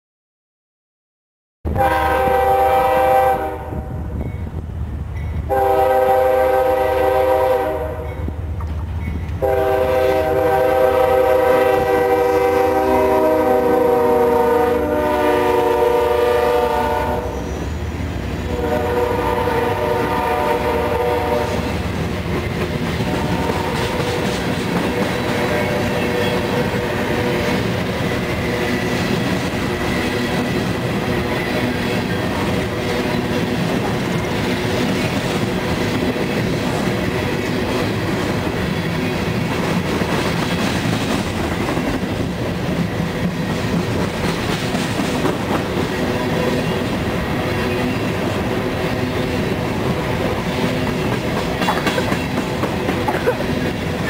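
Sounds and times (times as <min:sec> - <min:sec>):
locomotive horn blasts: 0:01.7 - 0:04.0, 0:05.5 - 0:08.2, 0:09.4 - 0:17.6, 0:18.5 - 0:21.8, 0:23.0 - 0:24.3
freight cars rumbling and clattering: 0:27.6 - 0:54.0.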